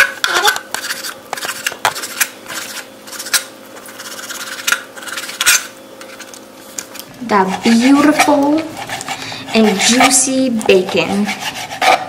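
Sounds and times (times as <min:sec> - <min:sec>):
knife slicing bacon: 0:07.5 - 0:12.0.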